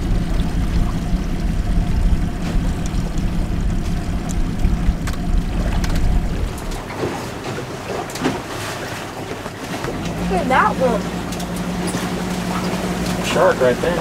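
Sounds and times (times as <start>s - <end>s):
wind rumbling on microphone: 0.0s - 8.5s
boat motor humming: 0.0s - 14.0s.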